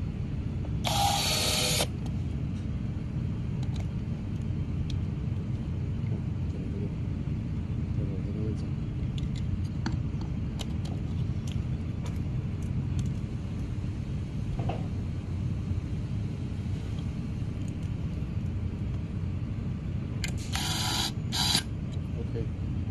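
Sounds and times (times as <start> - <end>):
steady low rumble: 0.0 - 22.9.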